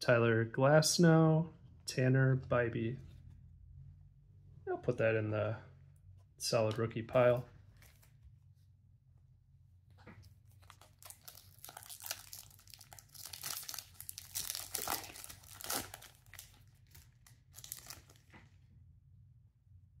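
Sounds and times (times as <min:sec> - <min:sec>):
wrapper tearing and crinkling: 0:10.5 - 0:18.3.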